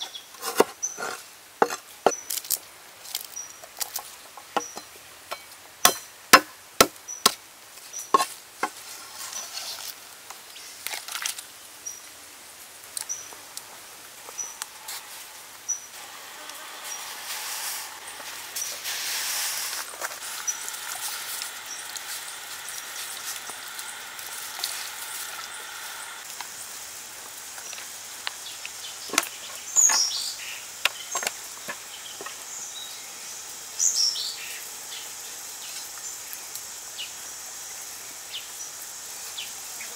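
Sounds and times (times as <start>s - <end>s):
wok of water hissing: 12.4s - 39.9s.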